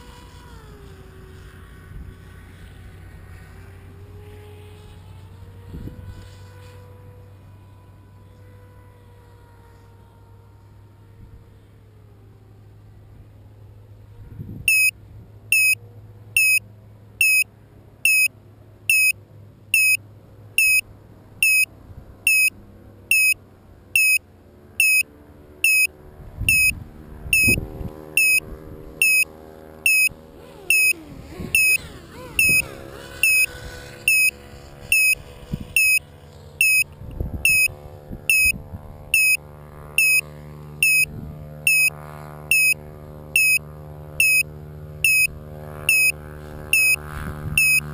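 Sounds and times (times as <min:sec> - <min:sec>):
short high-pitched beeps: 0:14.7 - 0:14.9, 0:15.6 - 0:15.8, 0:16.4 - 0:16.6, 0:17.2 - 0:17.4, 0:18.1 - 0:18.3, 0:18.9 - 0:19.2, 0:19.8 - 0:20.0, 0:20.6 - 0:20.8, 0:21.4 - 0:21.7, 0:22.3 - 0:22.5, 0:23.1 - 0:23.4, 0:24.0 - 0:24.2, 0:24.8 - 0:25.0, 0:25.7 - 0:25.9, 0:26.5 - 0:26.8, 0:27.4 - 0:27.6, 0:28.2 - 0:28.4, 0:29.0 - 0:29.3, 0:29.9 - 0:30.1, 0:30.7 - 0:31.0, 0:31.6 - 0:31.8, 0:32.4 - 0:32.6, 0:33.2 - 0:33.5, 0:34.1 - 0:34.3, 0:34.9 - 0:35.2, 0:35.8 - 0:36.0, 0:36.6 - 0:36.9, 0:37.5 - 0:37.7, 0:38.3 - 0:38.5, 0:39.2 - 0:39.4, 0:40.0 - 0:40.2, 0:40.8 - 0:41.1, 0:41.7 - 0:41.9, 0:42.5 - 0:42.8, 0:43.4 - 0:43.6, 0:44.2 - 0:44.4, 0:45.1 - 0:45.3, 0:45.9 - 0:46.2, 0:46.8 - 0:47.0, 0:47.6 - 0:47.8.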